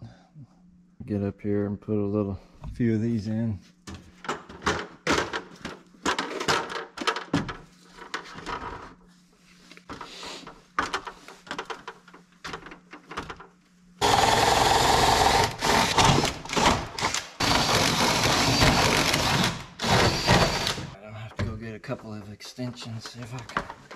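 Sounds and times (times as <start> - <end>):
cordless drill running: 14.0 - 21.0
handling knocks and clicks: 21.4 - 23.9.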